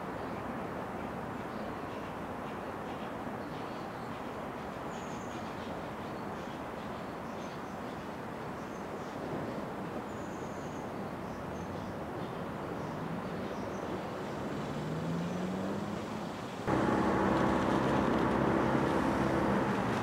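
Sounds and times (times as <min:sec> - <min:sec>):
road traffic noise: 0:12.4 - 0:20.0
steady engine hum: 0:14.1 - 0:20.0
vehicle engine speeding up: 0:14.5 - 0:20.0.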